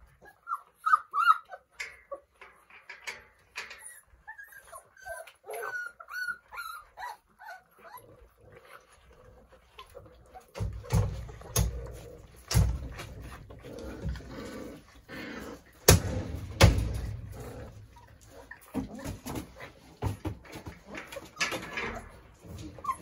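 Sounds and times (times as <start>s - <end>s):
puppies eating kibble: 0.0s - 23.0s
plastic bowls clattering and knocking: 15.9s - 23.0s.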